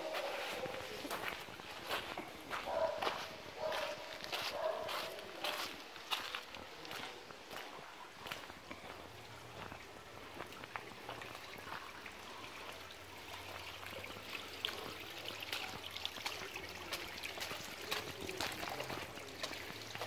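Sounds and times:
water running over stone steps: 0.0 - 20.0
small water splashes: 9.7 - 20.0.

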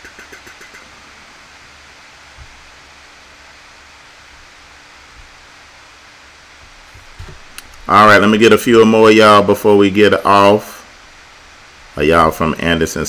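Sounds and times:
faint rapid ticks: 0.0 - 0.9
microphone hiss: 0.0 - 13.0.

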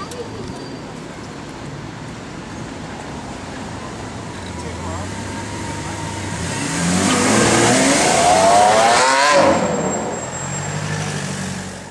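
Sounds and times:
sports car engine accelerating: 6.2 - 10.1.

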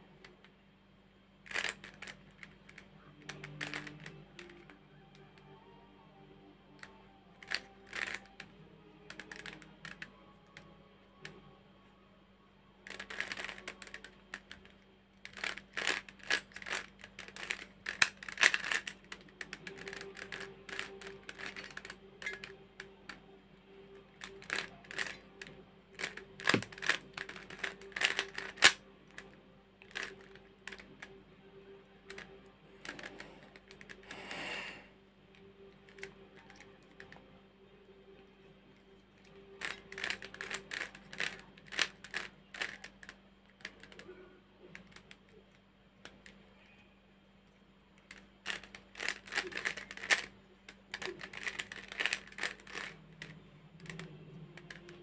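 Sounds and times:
puzzle cube layers clicking: 1.5 - 4.8, 6.8 - 8.5, 9.1 - 11.4, 12.9 - 23.2, 24.1 - 29.3, 29.9 - 31.1, 32.0 - 34.2, 39.6 - 44.1, 48.1 - 55.0.

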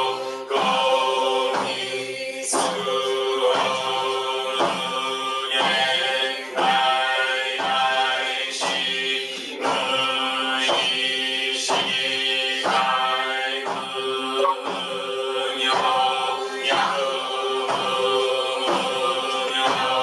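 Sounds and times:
voices chanting in unison: 0.0 - 20.0
regular rhythmic beat: 14.4 - 14.8.

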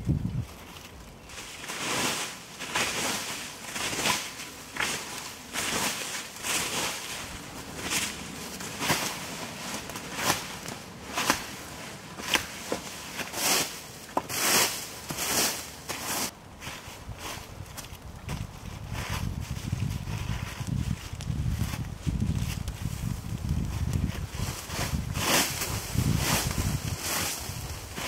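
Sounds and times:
dry leaves swept with stick: 0.4 - 17.5, 18.8 - 28.0
sticks snapping: 2.7 - 15.2.

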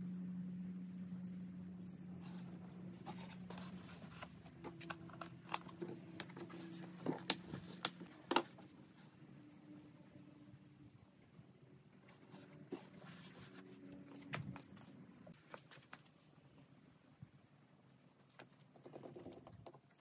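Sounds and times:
low steady hum: 0.0 - 20.0
quiet handling of plastic jugs: 2.2 - 9.1.

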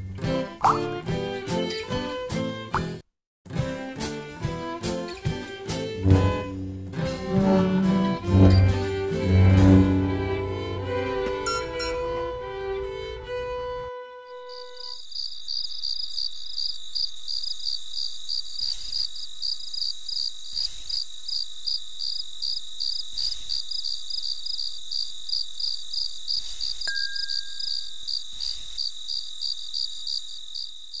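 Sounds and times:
brief high ping: 7.8 - 12.3
crickets chirping: 14.3 - 31.0.

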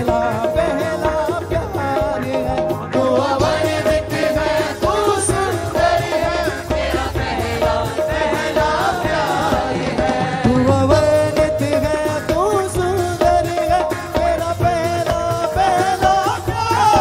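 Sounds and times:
drums: 0.0 - 17.0
keyboard: 0.0 - 17.0
women's choir singing: 3.0 - 10.7.

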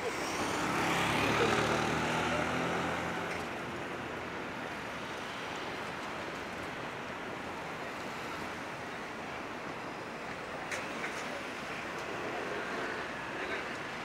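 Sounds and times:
passing engine hum: 0.0 - 4.2
steady outdoor background rush: 0.0 - 14.0.

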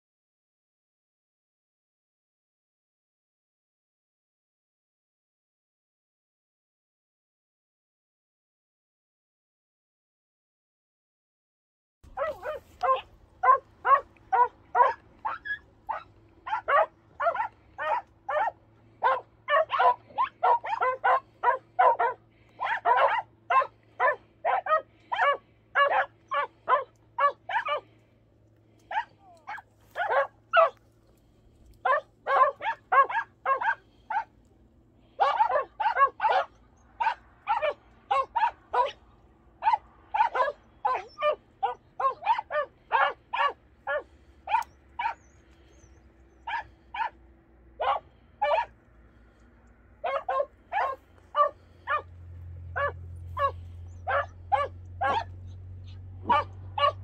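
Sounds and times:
dog barking rapidly: 12.1 - 28.0, 28.8 - 30.8, 31.8 - 34.4, 35.1 - 39.0, 39.6 - 47.2, 47.8 - 48.7, 50.0 - 52.1, 52.7 - 57.0.

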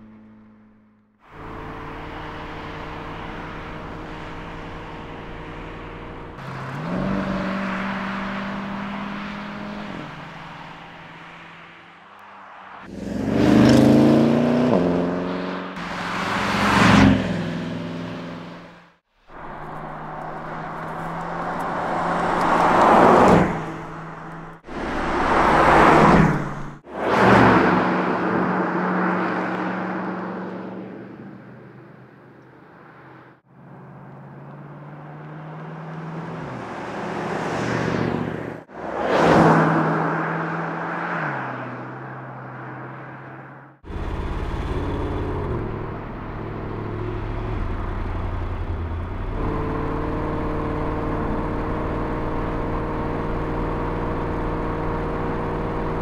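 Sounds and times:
car engine revving through gears: 1.3 - 10.6, 12.8 - 18.8, 33.8 - 41.2, 43.8 - 56.0
car passing by: 6.7 - 18.6, 19.4 - 31.0, 34.8 - 43.5.

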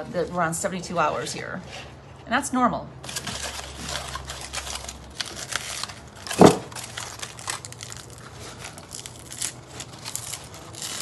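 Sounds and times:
foil and paper crinkling: 3.0 - 11.0
loud crunch: 3.1 - 11.0.

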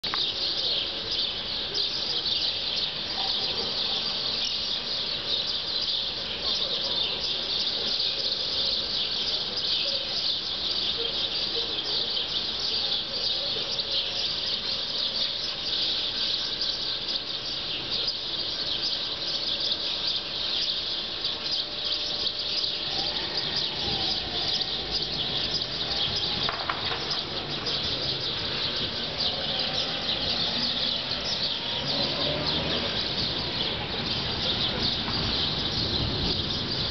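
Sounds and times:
shrill insect chorus: 3.9 - 36.9.

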